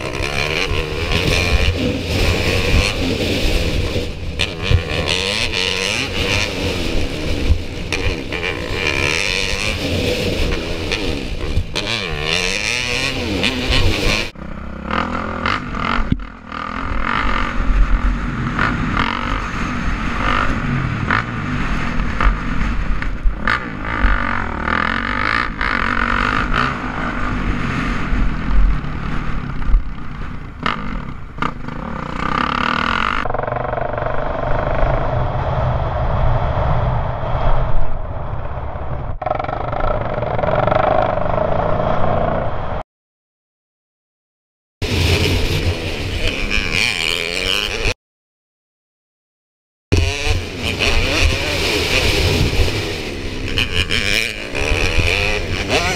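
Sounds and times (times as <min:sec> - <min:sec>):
dirt bike engine revving: 0:00.0 - 0:35.2, 0:44.8 - 0:48.0, 0:49.9 - 0:55.9
wind rush: 0:33.2 - 0:42.8.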